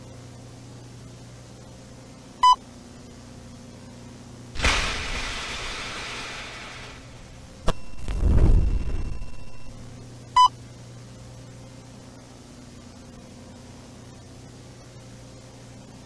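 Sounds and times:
steady low hum: 0.0s - 16.0s
low rushing rumble: 4.6s - 9.9s
burst of static hiss: 4.6s - 10.0s
short electronic beep: 7.7s - 9.8s.

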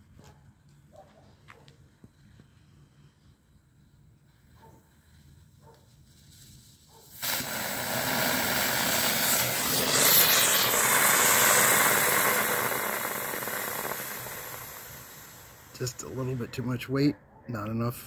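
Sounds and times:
rocket motor rushing hiss: 6.0s - 16.8s.

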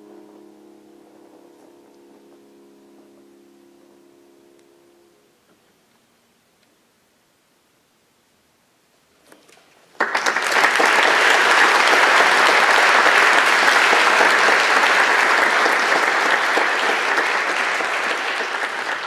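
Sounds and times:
audience applause: 10.0s - 19.0s.

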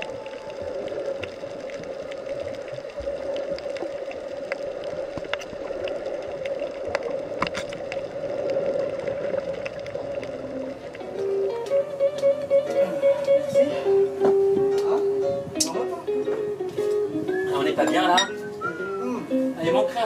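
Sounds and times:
muffled underwater drone: 5.7s - 11.5s.

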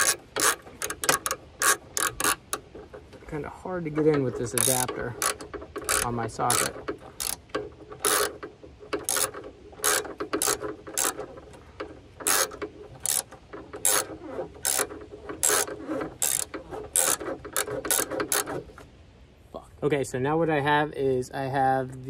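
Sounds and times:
socket ratchet clicking: 0.0s - 2.6s, 4.6s - 8.4s, 9.0s - 11.3s, 12.2s - 18.5s.

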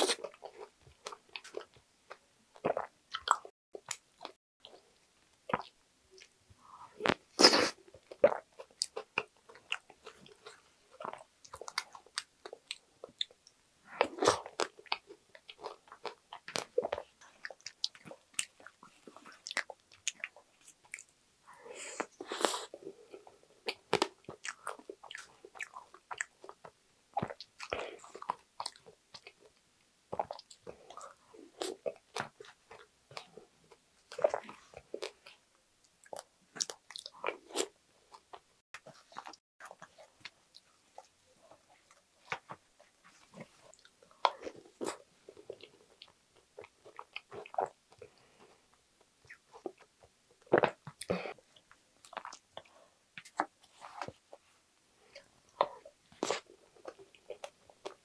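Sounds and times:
wet chewing and mouth smacks: 23.7s - 29.4s.

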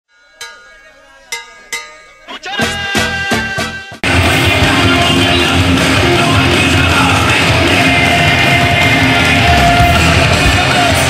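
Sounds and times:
loud rock music: 2.3s - 11.0s.

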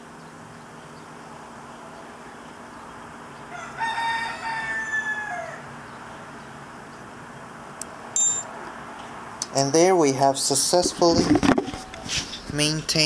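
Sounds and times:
rooster crowing: 3.5s - 5.7s.

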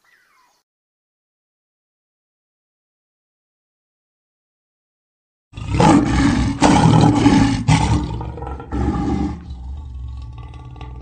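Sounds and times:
lion roaring: 5.6s - 11.0s.

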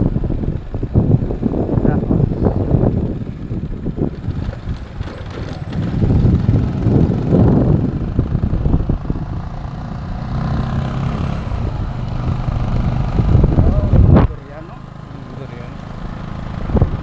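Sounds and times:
wind buffeting microphone: 0.0s - 14.9s, 15.6s - 17.0s
motorcycle engine running: 0.0s - 17.0s.

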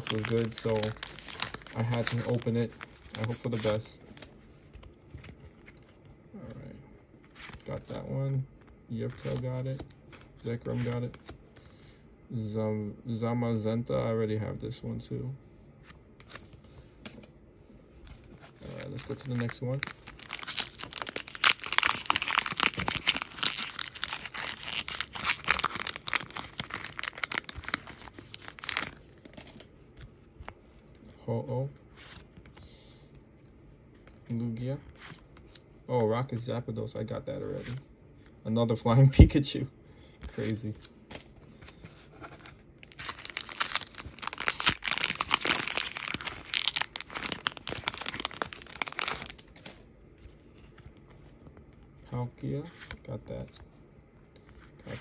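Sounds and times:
foil wrapper tearing and crinkling: 0.0s - 3.8s, 18.6s - 29.6s, 42.8s - 49.8s.

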